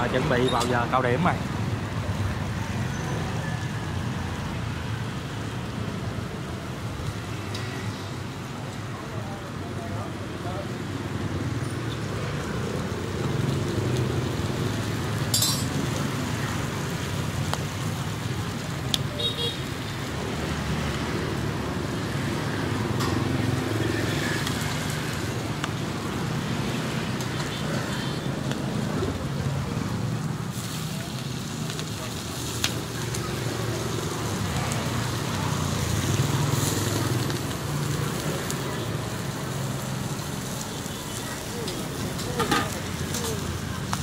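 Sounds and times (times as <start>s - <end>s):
road traffic: 0.0s - 44.0s
wood fire crackles: 0.0s - 44.0s.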